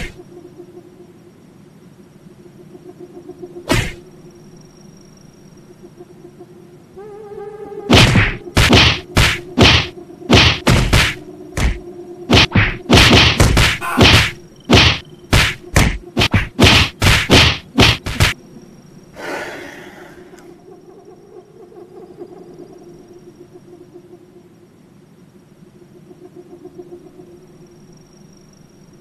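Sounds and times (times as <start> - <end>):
punch impact whacks: 3.7 - 4.0, 7.9 - 18.4.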